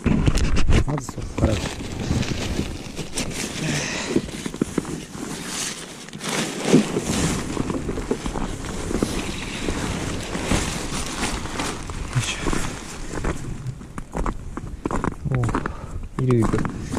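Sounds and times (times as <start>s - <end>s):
tent fabric rustling: 1.2s - 13.6s.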